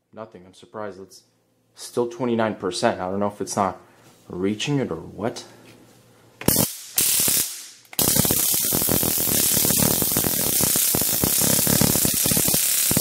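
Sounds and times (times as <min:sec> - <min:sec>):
stun gun electric crackle: 0:06.5 - 0:13.0.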